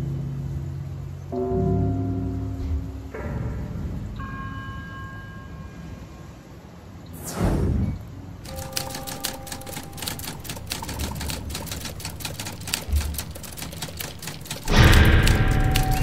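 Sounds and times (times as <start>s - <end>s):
falling whoosh: 7.2s - 8.2s
typewriter key clicking: 8.5s - 16.0s.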